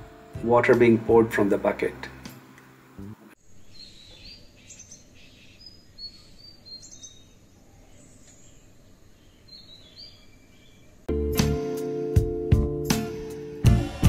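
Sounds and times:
small birds chirping: 3.0s - 11.1s.

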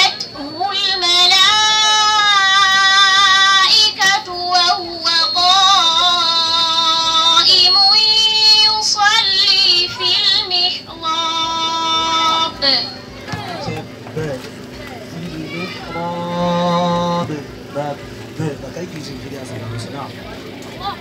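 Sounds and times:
girl chanting recitation: 8.6s - 13.7s.

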